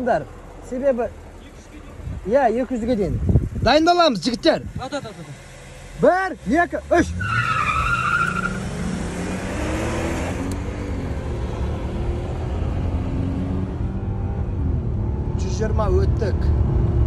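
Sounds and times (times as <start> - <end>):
car engines accelerating: 0.0 - 17.0
tire squeal: 7.0 - 9.5.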